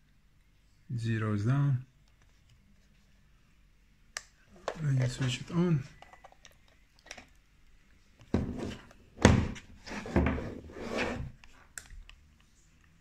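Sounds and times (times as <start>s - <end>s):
thuds and knocks on wooden table: 8.3s - 10.5s.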